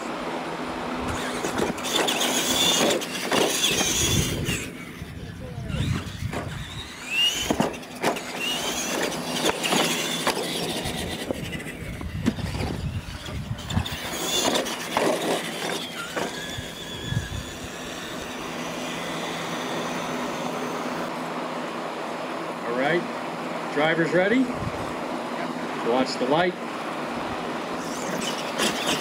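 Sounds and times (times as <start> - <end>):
electric motor whines: 0.0 - 21.3, 27.4 - 29.0
tyres on dirt: 0.0 - 23.2, 23.8 - 29.0
trucks knocking and thudding: 1.1 - 4.9, 5.8 - 17.6.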